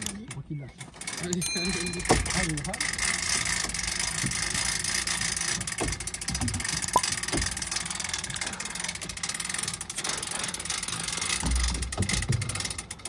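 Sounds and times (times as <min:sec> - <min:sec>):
hand winch knocks and clicks: 0:00.0 - 0:10.1, 0:10.8 - 0:13.0.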